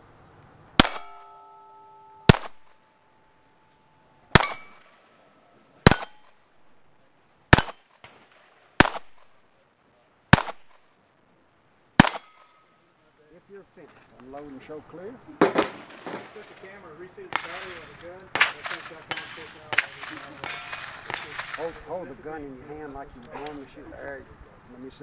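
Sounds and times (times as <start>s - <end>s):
pistol shots: 0.8s - 1.4s, 2.2s - 2.9s, 4.3s - 5.1s, 5.8s - 6.4s, 7.5s - 9.4s, 10.3s - 10.9s, 12.0s - 12.6s, 15.4s - 21.9s
steel targets ringing: 0.8s - 6.4s, 12.0s - 12.8s, 17.4s - 21.6s.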